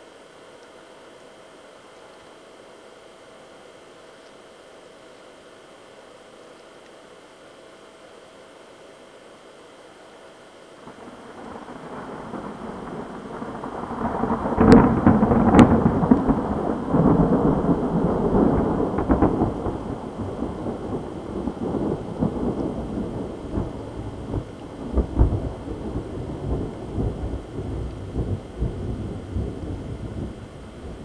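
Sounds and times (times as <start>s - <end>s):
rain falling: 0.0s - 31.0s
thunder crack and rolling rumble: 10.8s - 31.0s.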